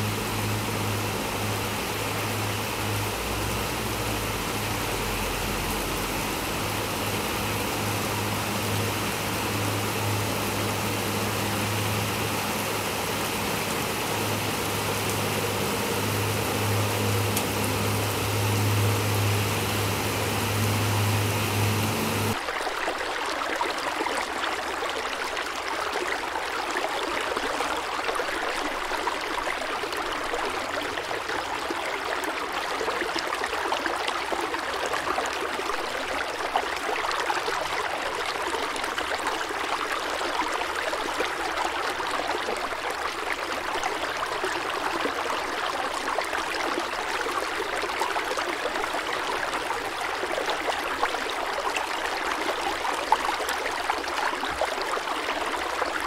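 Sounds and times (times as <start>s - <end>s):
water rushing: 0.0s - 56.0s.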